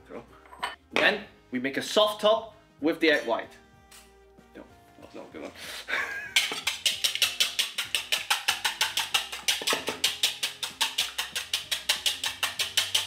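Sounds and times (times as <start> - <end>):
whisk clicking against bowl: 6.4 - 13.0.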